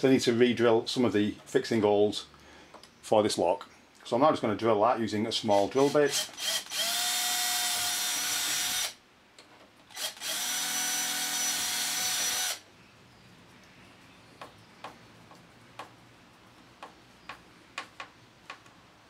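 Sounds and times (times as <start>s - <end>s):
power drill drilling: 5.8s - 9.0s, 9.9s - 12.6s.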